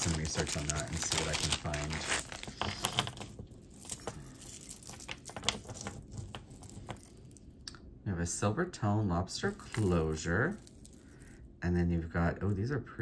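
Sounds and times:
jewelry clicking and clinking: 0.9s - 7.4s, 9.5s - 11.3s.

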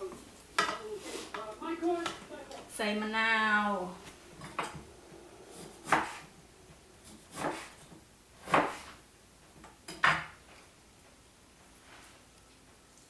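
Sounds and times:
knife chopping on wooden board: 5.8s - 6.2s, 7.1s - 7.7s, 8.4s - 9.0s.

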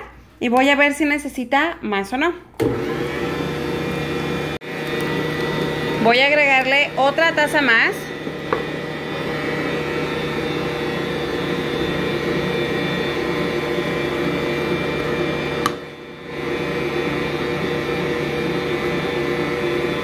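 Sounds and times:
stand mixer kneading dough: 2.6s - 20.0s
mixer click: 4.8s - 6.0s, 15.6s - 15.9s.

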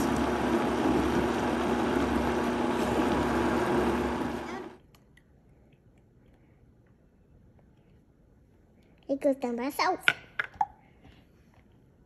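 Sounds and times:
blender motor running: 0.0s - 4.8s.

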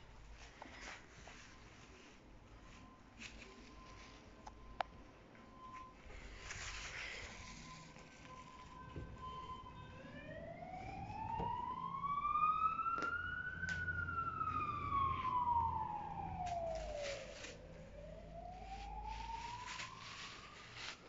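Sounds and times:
plastic rustling and scuffling: 0.2s - 4.7s, 5.5s - 9.8s, 15.2s - 21.0s
siren wailing: 1.3s - 21.0s.

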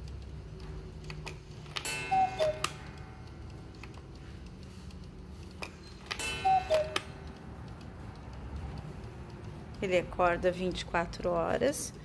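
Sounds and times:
clock mechanism clacks: 0.0s - 12.0s
faint clock ticking: 0.0s - 12.0s
cuckoo clock call: 1.7s - 8.0s.

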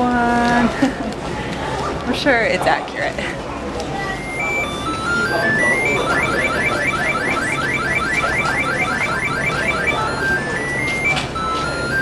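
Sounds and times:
stepped rising beeps: 4.1s - 12.0s
rapid rising electronic chirps: 4.2s - 12.0s.

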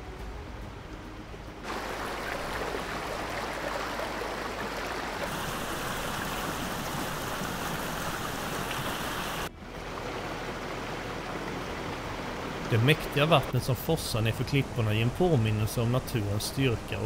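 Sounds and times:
waterfall rushing over rocks: 1.7s - 9.5s.

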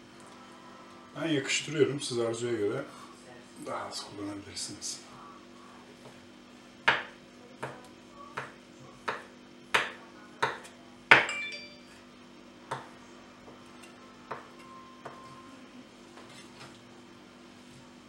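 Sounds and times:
knife chopping on wooden board: 6.8s - 7.8s, 8.4s - 11.3s, 14.3s - 15.2s.

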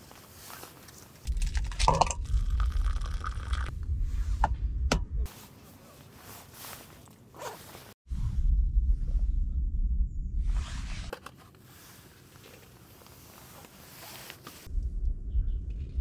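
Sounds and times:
low rumble: 1.3s - 5.3s, 8.1s - 11.1s, 14.7s - 16.0s.

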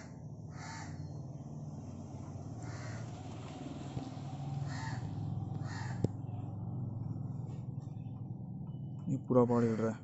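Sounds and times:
crows cawing: 0.0s - 1.1s, 2.6s - 3.2s, 4.6s - 6.1s.

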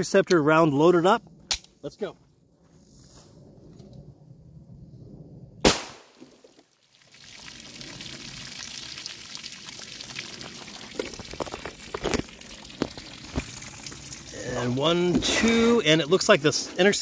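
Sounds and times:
pistol shot: 5.6s - 6.2s
water pouring and trickling: 6.2s - 17.0s.

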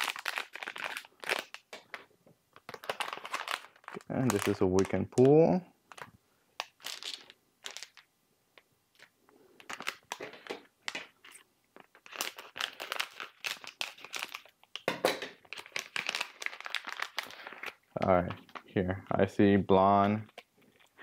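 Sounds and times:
packaging tearing and crinkling: 0.0s - 2.0s, 2.6s - 5.3s, 5.9s - 8.1s, 8.9s - 17.8s.

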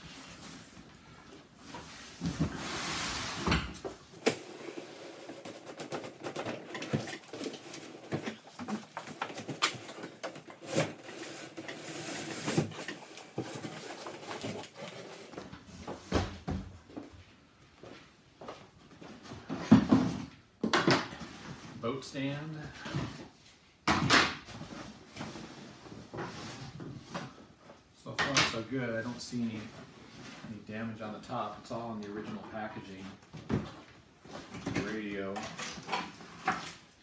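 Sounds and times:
cardboard scraping on cardboard: 9.9s - 15.4s.

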